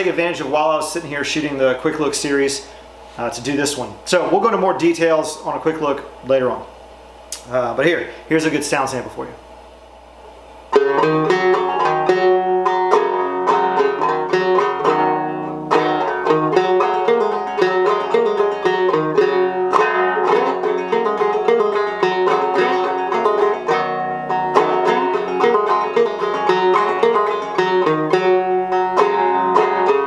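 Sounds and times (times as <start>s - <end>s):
banjo plucked notes: 10.7s - 30.0s.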